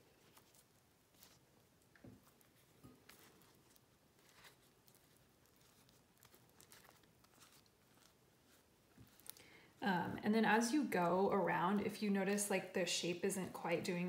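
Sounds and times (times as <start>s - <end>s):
soft paper rustles: 0.0s - 9.8s.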